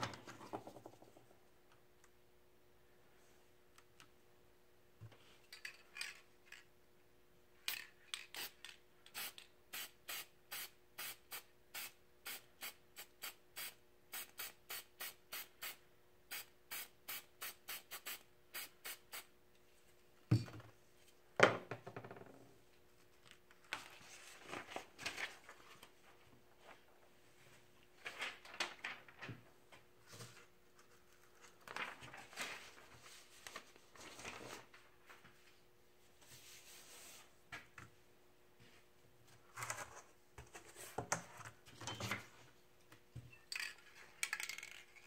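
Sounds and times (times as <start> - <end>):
spray paint can bursts: 8.3 - 19.2
paper rustling: 23.5 - 27.0, 27.9 - 35.5.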